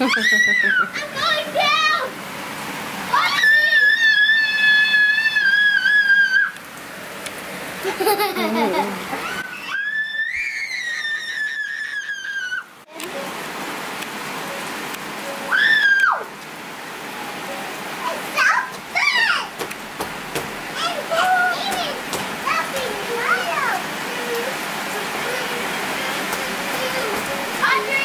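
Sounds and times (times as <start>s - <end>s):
child squealing: 0.0s - 1.0s, 3.1s - 6.6s, 9.1s - 12.7s, 15.5s - 16.3s
rain falling: 0.0s - 28.0s
child voice sounds: 0.2s - 2.2s, 18.0s - 19.6s, 20.8s - 28.0s.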